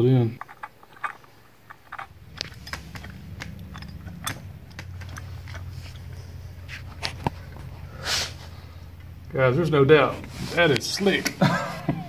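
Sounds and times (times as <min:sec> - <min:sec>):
low steady hum: 0:00.0 - 0:12.0
ratchet wrench clicking: 0:00.5 - 0:06.2.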